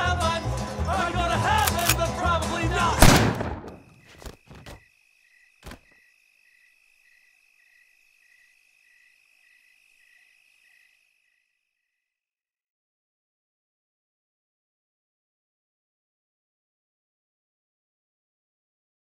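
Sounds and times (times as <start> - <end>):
crickets chirping: 3.0 - 12.3.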